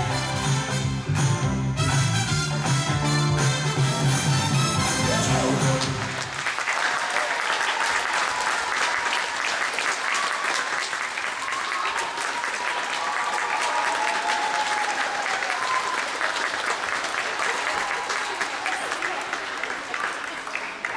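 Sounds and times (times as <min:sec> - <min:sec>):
backing music: 0:00.0 - 0:06.4
audience applauding: 0:01.8 - 0:20.9.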